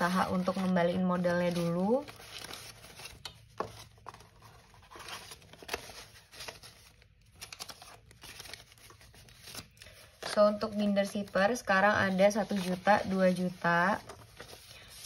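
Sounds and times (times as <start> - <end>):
banknotes rustling: 0.0 - 15.0.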